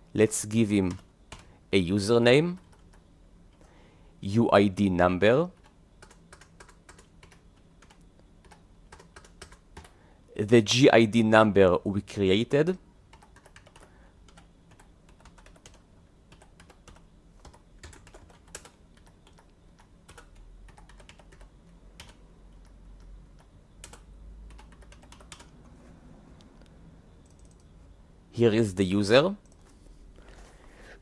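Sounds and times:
faint low hum: 0:00.0 - 0:31.0
typing on computer keyboard: 0:00.9 - 0:01.5, 0:02.5 - 0:03.7, 0:05.6 - 0:10.0, 0:13.1 - 0:25.6, 0:27.2 - 0:27.7.

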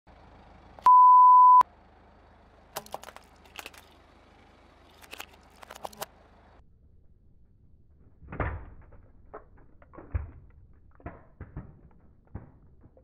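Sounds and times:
one-tone beep: 0:00.8 - 0:01.6
tyre crunching small objects: 0:02.8 - 0:04.0, 0:04.8 - 0:06.1.

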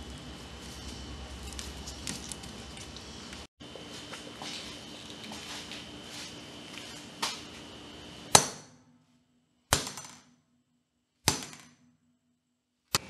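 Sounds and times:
hammer striking phone: 0:09.7 - 0:10.3, 0:11.3 - 0:11.9.

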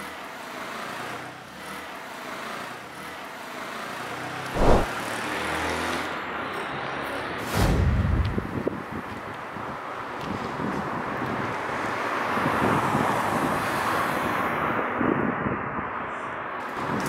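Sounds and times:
street traffic hum: 0:00.0 - 0:17.0
loud thump: 0:04.6 - 0:04.9.

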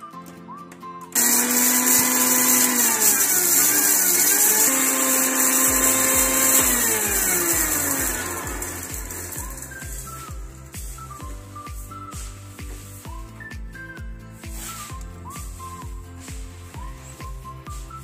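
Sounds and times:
mixer grinder grinding seeds: 0:01.2 - 0:12.2.

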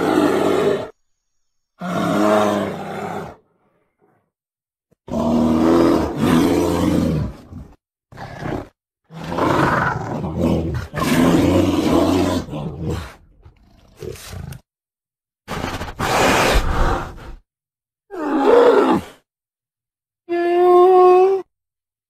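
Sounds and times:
bear roaring: 0:00.0 - 0:00.9, 0:01.8 - 0:03.5, 0:05.0 - 0:14.6, 0:18.1 - 0:19.2.

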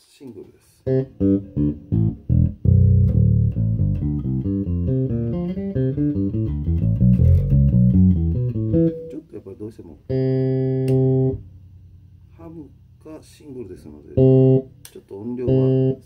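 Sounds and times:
electric bass played fingerstyle: 0:00.8 - 0:09.3, 0:10.1 - 0:13.0, 0:13.8 - 0:16.0.

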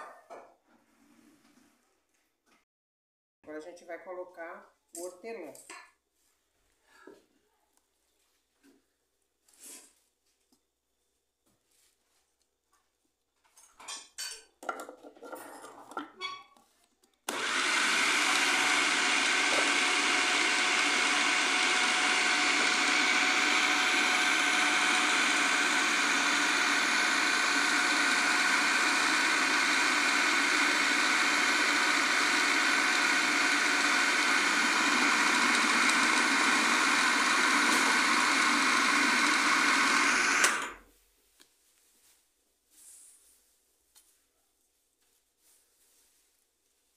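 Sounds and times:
food processor motor running: 0:17.3 - 0:40.8.

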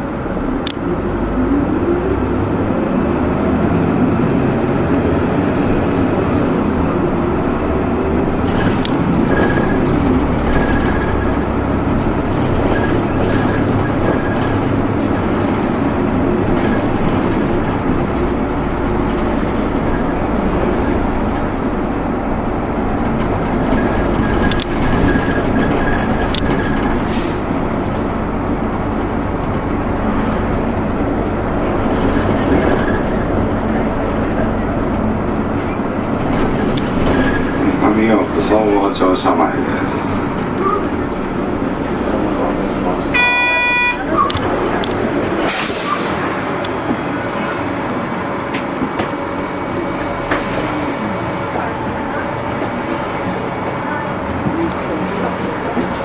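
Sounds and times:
bus engine: 0:00.0 - 0:56.0
road noise: 0:00.0 - 0:56.0
short repeating high tone: 0:43.1 - 0:44.3.

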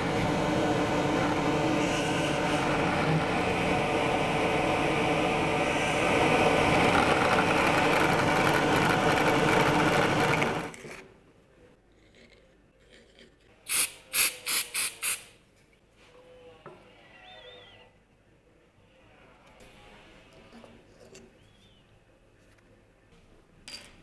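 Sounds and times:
drill press boring into wood: 0:05.9 - 0:10.8.

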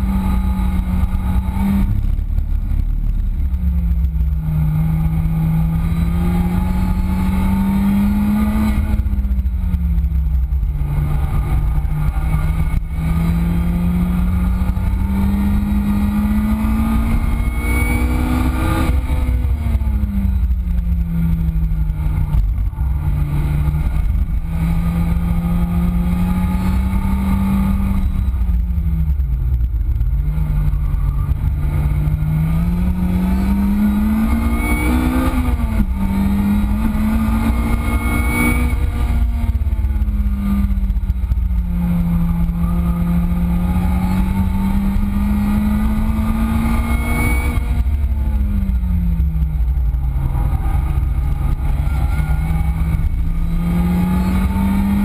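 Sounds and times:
wind and road noise rumble: 0:00.0 - 0:55.0
car engine revving hard: 0:30.4 - 0:55.0.

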